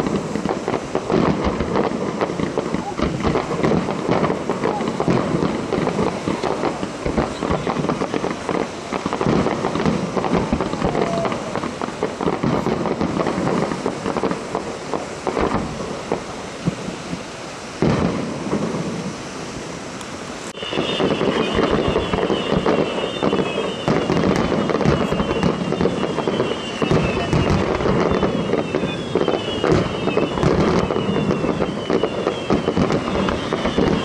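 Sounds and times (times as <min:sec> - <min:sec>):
fireworks bangs: 0:00.0 - 0:34.0
fireworks bursting and crackling: 0:00.0 - 0:34.0
high wavering whistle: 0:20.5 - 0:34.0.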